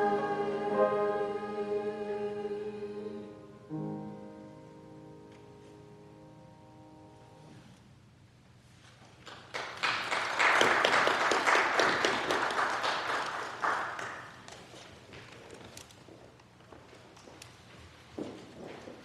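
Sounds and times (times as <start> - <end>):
keyboard chord: 3.4 - 7.5
congregation applauding: 9.2 - 14.8.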